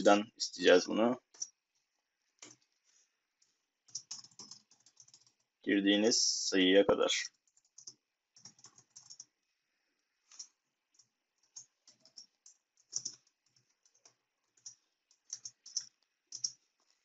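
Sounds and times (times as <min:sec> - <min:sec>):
computer keyboard keystrokes: 0:03.9 - 0:05.4, 0:07.4 - 0:09.3, 0:10.3 - 0:16.6.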